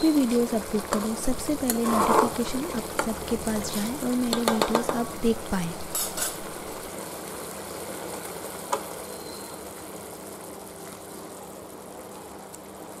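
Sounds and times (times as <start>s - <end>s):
faint hum: 0.0s - 6.9s
gravy bubbling and hissing: 0.0s - 13.0s.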